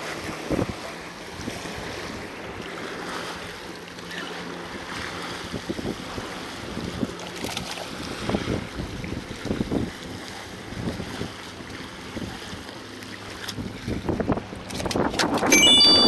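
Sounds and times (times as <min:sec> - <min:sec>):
wind buffeting microphone: 0:07.9 - 0:15.5.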